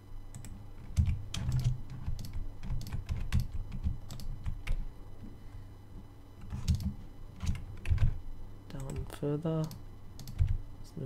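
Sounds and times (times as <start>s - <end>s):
steady low hum: 0.0s - 11.0s
keyboard and mouse clicking: 0.3s - 4.8s, 6.4s - 8.2s, 8.8s - 10.6s.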